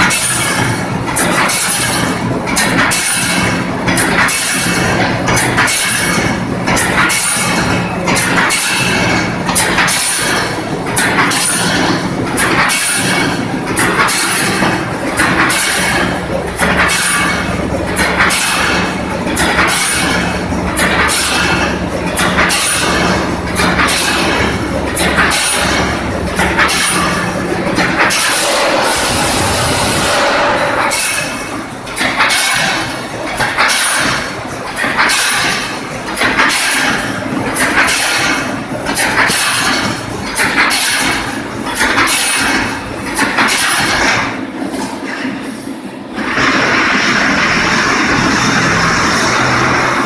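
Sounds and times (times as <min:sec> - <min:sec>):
welding machine clacking: 0:00.0 - 0:50.0
low machine hum: 0:02.0 - 0:33.5.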